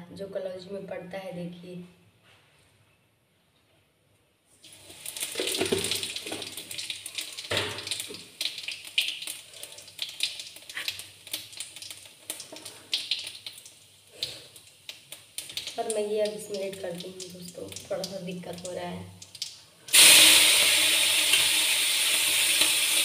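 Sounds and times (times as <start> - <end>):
spices sizzling in hot oil: 4.6 - 23.0.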